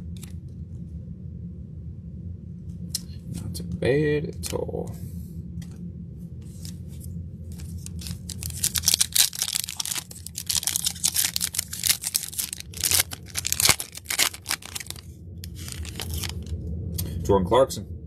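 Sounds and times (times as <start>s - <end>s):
low steady hum: 0.0s - 18.0s
plastic wrapper crinkling and tearing: 7.6s - 16.5s.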